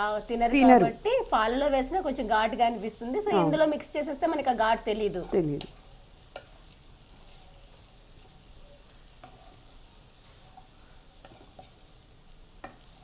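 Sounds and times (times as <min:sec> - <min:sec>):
noodles sizzling in pan: 0:00.0 - 0:13.0
spatula clicking against pan: 0:05.6 - 0:06.5.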